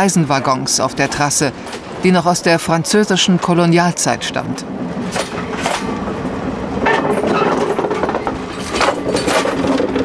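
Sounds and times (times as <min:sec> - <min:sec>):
train wheels rumbling on rail: 0:00.8 - 0:10.0
clanks from wheels and couplings: 0:01.0 - 0:02.0, 0:05.0 - 0:10.0.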